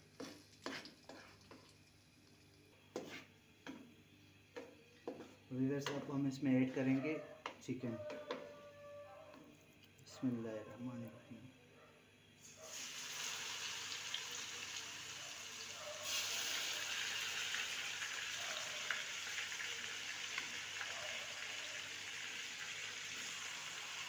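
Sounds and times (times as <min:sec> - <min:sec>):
chicken sizzling in a pan: 0:12.4 - 0:24.0.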